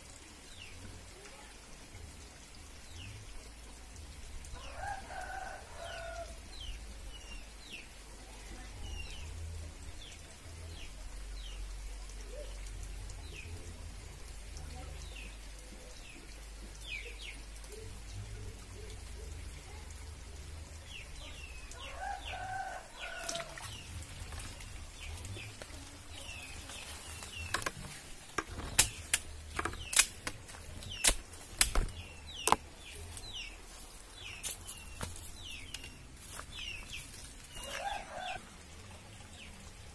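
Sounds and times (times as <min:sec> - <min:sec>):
small birds chirping: 0:14.6 - 0:20.1, 0:20.7 - 0:38.4.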